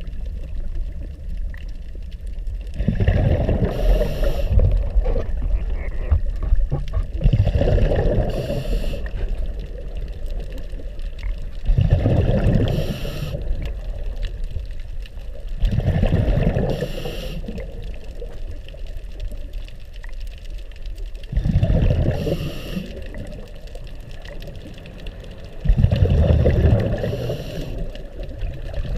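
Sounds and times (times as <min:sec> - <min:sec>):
exhaled bubbles burbling: 0:02.7 - 0:14.5, 0:15.2 - 0:19.5, 0:21.2 - 0:28.9
regulator inhale hiss: 0:03.6 - 0:04.8, 0:08.2 - 0:09.4, 0:12.6 - 0:13.6, 0:16.6 - 0:17.8, 0:22.1 - 0:23.3, 0:26.8 - 0:28.2.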